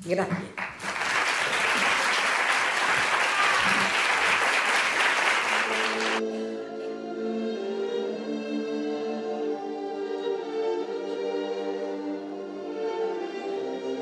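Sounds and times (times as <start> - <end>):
audience applauding: 0.4 - 6.2
music with long held notes: 5.6 - 14.0.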